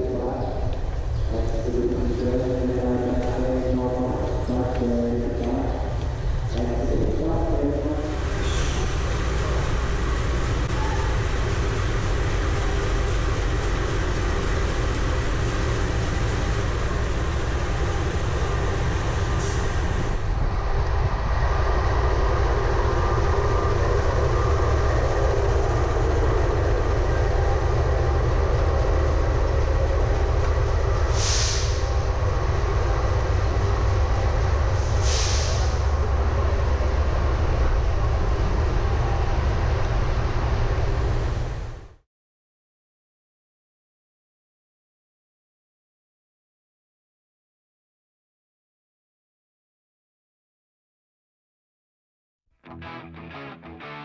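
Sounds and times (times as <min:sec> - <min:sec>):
locomotive engine idling: 0:20.7 - 0:34.8
short hisses: 0:31.1 - 0:31.9, 0:34.8 - 0:35.8.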